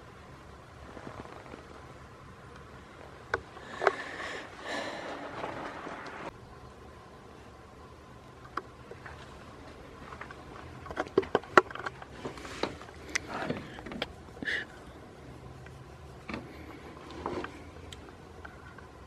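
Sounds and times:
rustling: 0:00.7 - 0:06.3
sharp clicks and knocks: 0:10.2 - 0:14.1.

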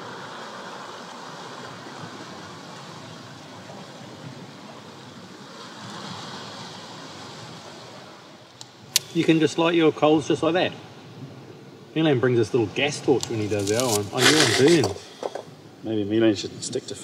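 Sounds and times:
waves breaking over rocks: 0:00.0 - 0:09.8, 0:12.6 - 0:15.8.

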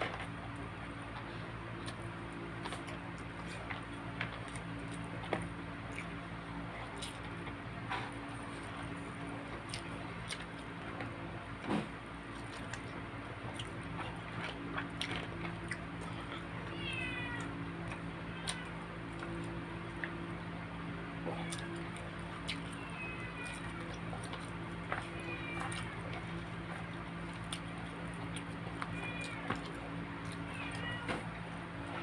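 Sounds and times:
steady low hum: 0:00.0 - 0:32.0
person eating with hands: 0:00.2 - 0:16.8, 0:17.4 - 0:32.0
cat meowing: 0:16.0 - 0:20.2, 0:21.2 - 0:32.0.

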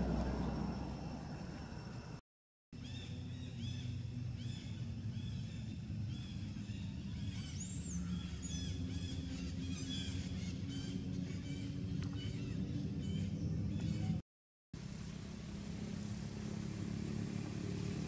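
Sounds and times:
steady low hum: 0:00.0 - 0:02.2, 0:02.8 - 0:14.2, 0:14.8 - 0:18.0
small birds chirping: 0:02.8 - 0:14.2.

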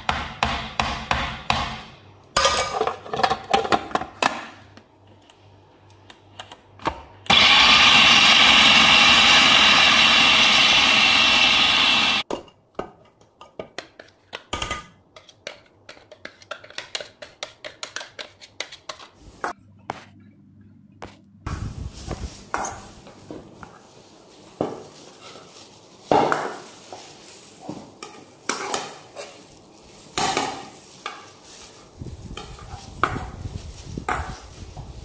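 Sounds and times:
food processor motor grinding: 0:07.3 - 0:12.2.

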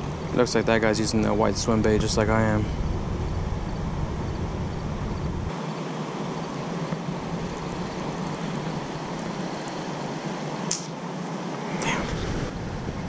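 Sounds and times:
deep rumble: 0:00.0 - 0:05.5
wind rushing on microphone: 0:00.0 - 0:13.0.

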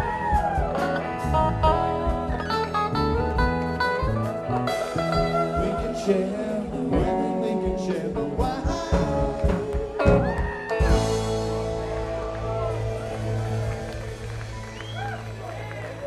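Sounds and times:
drum beat: 0:00.0 - 0:02.8, 0:08.3 - 0:15.2
electric guitar lead: 0:00.0 - 0:16.0.

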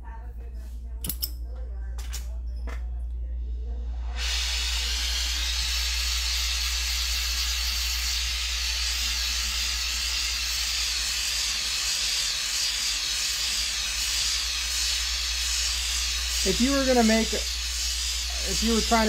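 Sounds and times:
gas torch flame hissing: 0:04.0 - 0:19.0.

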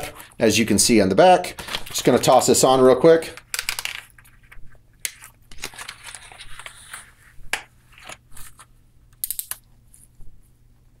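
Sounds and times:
plastic and strap clicks and rustles: 0:03.3 - 0:07.0.

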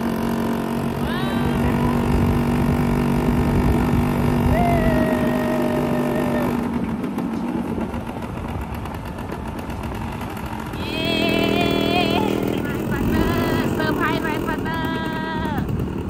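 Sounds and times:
motorcycle engine running: 0:00.0 - 0:16.0
wind buffeting microphone: 0:00.9 - 0:06.8.

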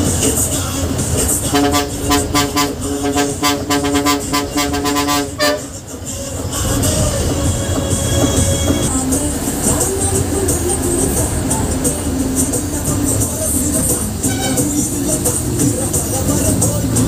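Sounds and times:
bus horn honking: 0:01.2 - 0:09.0, 0:13.8 - 0:15.4.

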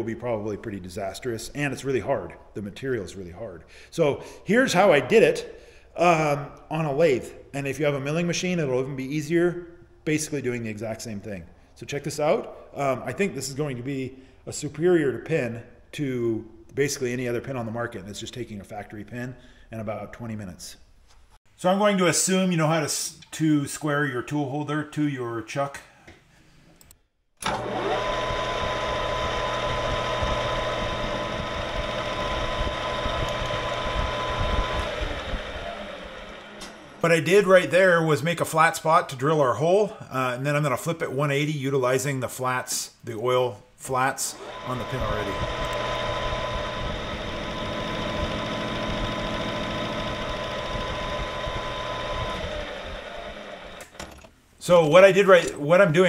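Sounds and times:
metal lathe running: 0:27.4 - 0:37.4, 0:44.3 - 0:54.0
steady high whine: 0:29.7 - 0:37.7, 0:44.3 - 0:53.8.

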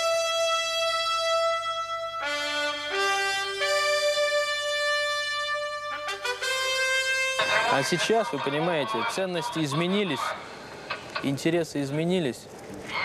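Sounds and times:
brass band playing long notes: 0:00.0 - 0:09.1.

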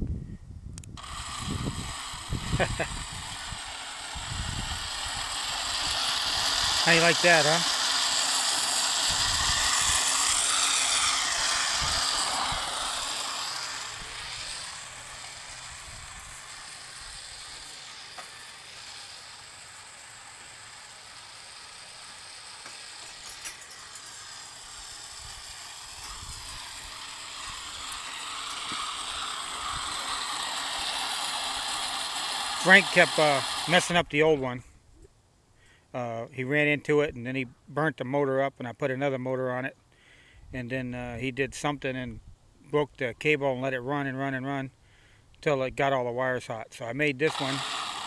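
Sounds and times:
toy car motor whirring: 0:00.8 - 0:34.5, 0:47.1 - 0:48.0.

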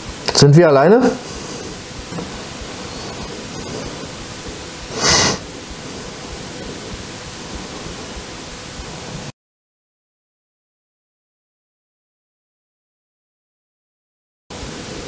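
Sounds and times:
steady hiss: 0:00.0 - 0:09.3, 0:14.5 - 0:15.0
breathy rush: 0:01.2 - 0:07.0.

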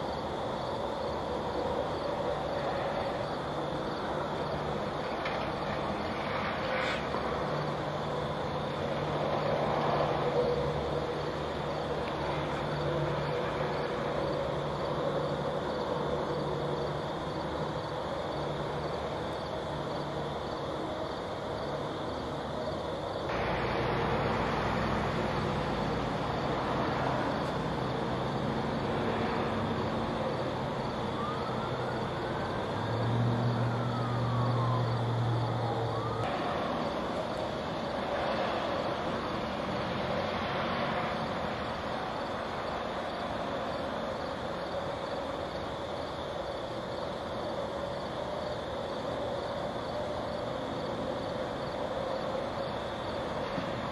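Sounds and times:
low engine drone: 0:00.0 - 0:45.8
vehicle passing: 0:02.0 - 0:44.8.

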